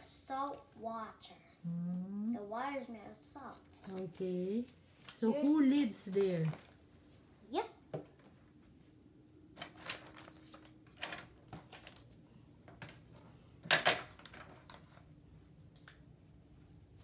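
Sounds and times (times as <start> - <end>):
paper sheets rustling: 9.6 - 12.1.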